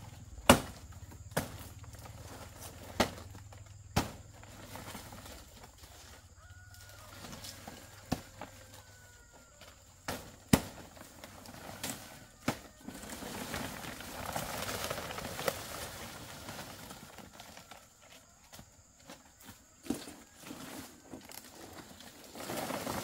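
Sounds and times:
palm leaves rustling and crackling: 0.0s - 23.0s
machete chopping stalks: 0.4s - 1.8s, 2.6s - 5.2s, 10.1s - 12.8s.

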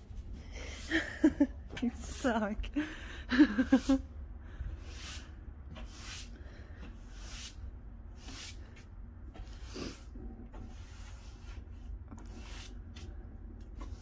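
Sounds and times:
broom sweeping snow: 3.5s - 4.0s, 4.7s - 6.4s, 7.0s - 8.9s.

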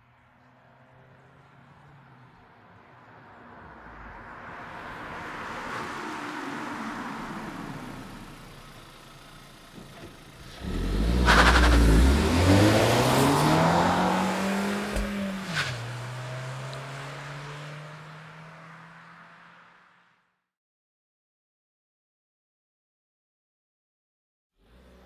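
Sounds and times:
car engine revving: 10.3s - 20.0s
rushing sound: 11.2s - 16.6s.

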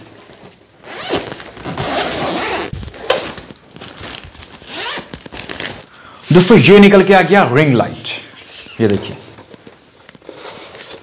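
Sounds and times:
fabric rustling: 0.0s - 5.9s
zipper being pulled open: 0.8s - 5.8s.

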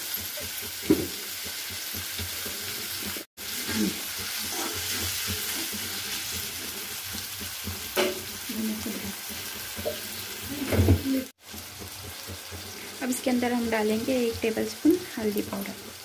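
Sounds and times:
vegetables sizzling in hot oil: 0.0s - 16.0s
spatula knocking against pan: 0.1s - 2.7s, 4.2s - 10.2s, 11.4s - 12.9s.

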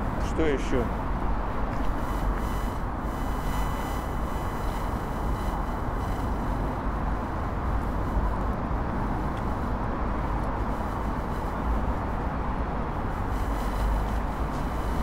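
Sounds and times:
faint high-pitched steady tones: 0.0s - 15.0s
steady rushing noise: 0.0s - 15.0s.

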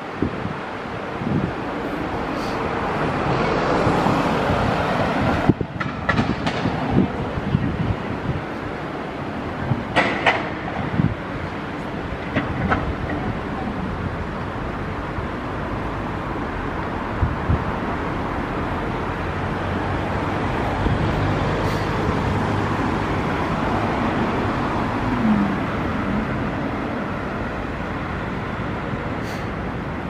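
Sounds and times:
cars passing on city street: 0.0s - 30.0s.

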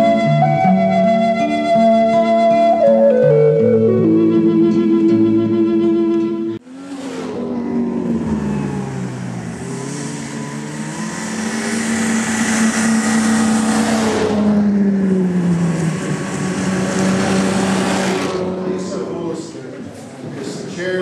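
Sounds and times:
snowmobile engine running: 6.7s - 19.4s.

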